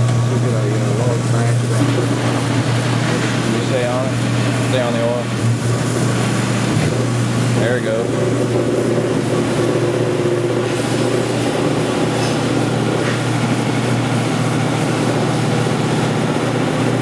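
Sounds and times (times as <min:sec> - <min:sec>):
machine motor humming: 0:00.0 - 0:17.0.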